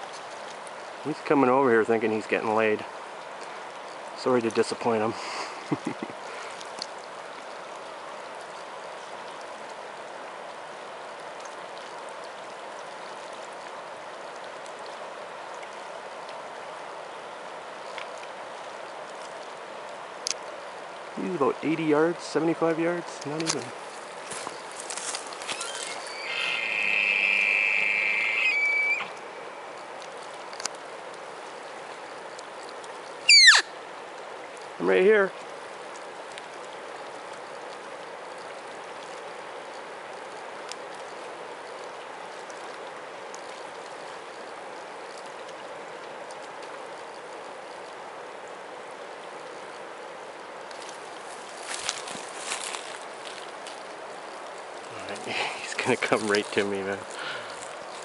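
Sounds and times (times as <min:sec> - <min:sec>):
river current rushing: 0:00.0 - 0:58.0
elk bugling: 0:25.4 - 0:29.4, 0:33.3 - 0:33.7.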